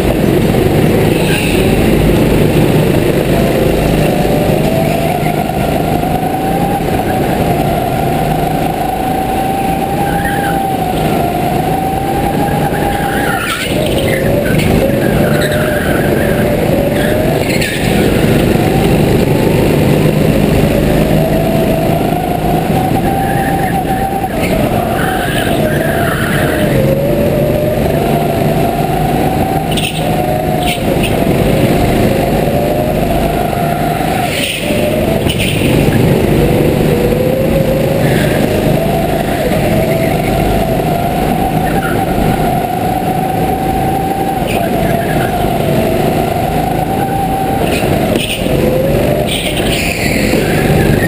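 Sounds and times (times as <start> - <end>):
go-kart engine running hard: 0.0 - 51.0
tyre squeals: 8.3 - 18.4, 21.0 - 27.4, 37.8 - 51.0.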